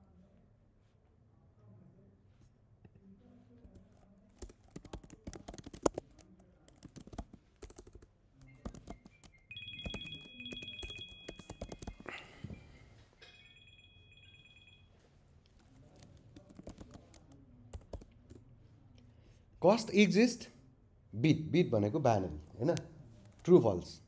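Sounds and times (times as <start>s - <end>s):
typing on a keyboard: 4.3s - 12.2s, 15.6s - 18.5s
faint high warbling tone: 9.5s - 14.9s.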